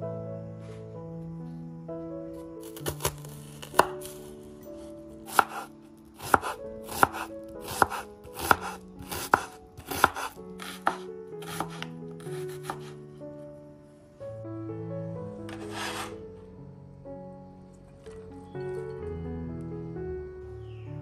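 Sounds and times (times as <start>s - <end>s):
knife chopping on cutting board: 2.7s - 4.2s, 5.3s - 13.0s, 15.5s - 16.2s.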